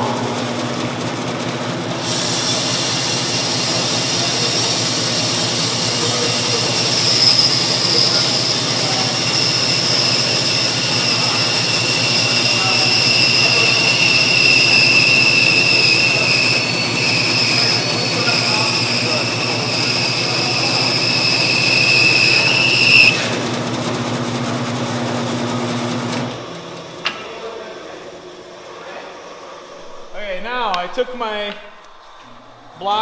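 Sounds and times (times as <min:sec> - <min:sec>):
bandsaw hum: 0:00.0 - 0:33.0
bandsaw blade cutting hiss: 0:02.0 - 0:23.4
high whine: 0:02.2 - 0:23.5, 0:26.4 - 0:33.0.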